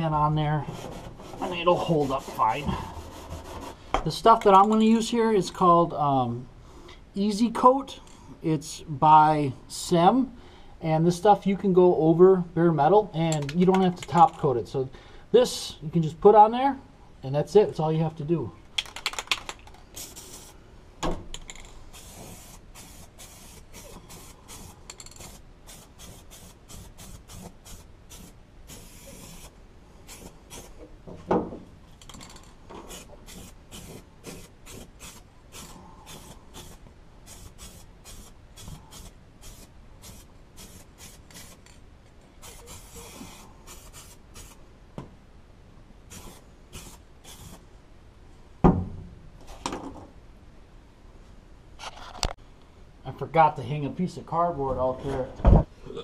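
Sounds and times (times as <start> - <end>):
aerosol spray can hissing: 20.0 - 20.6, 21.9 - 30.8, 32.9 - 41.6, 42.4 - 44.6, 46.1 - 47.6.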